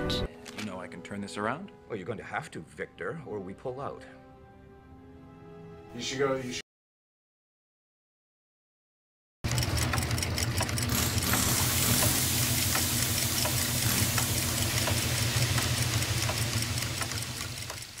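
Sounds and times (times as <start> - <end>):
mechanical clicks: 9.5 - 18.0
hissing rush: 11.3 - 18.0.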